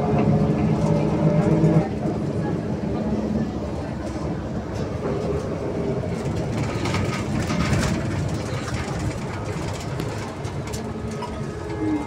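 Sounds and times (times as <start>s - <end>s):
low rumble of bus tyres: 0.0s - 12.0s
rattling and clatter: 6.0s - 12.0s.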